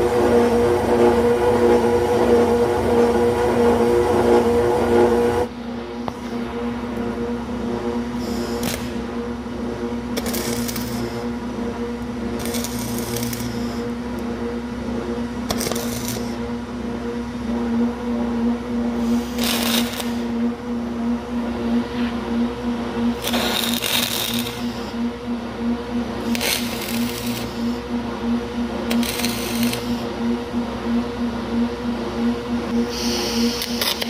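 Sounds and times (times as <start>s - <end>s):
pulsing welder hum: 0.0s - 34.0s
welding arc crackling: 8.2s - 9.1s, 10.1s - 11.4s, 12.0s - 14.3s, 15.4s - 16.4s, 19.0s - 20.4s, 23.1s - 25.0s, 26.1s - 27.8s, 28.9s - 30.1s, 32.7s - 34.0s.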